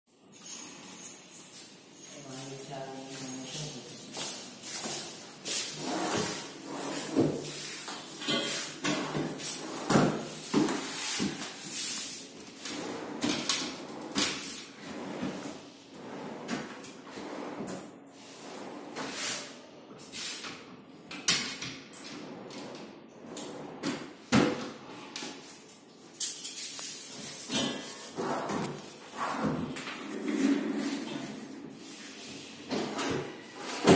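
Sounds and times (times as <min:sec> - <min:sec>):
drawers sliding on runners: 0:04.2 - 0:20.5, 0:26.7 - 0:33.9.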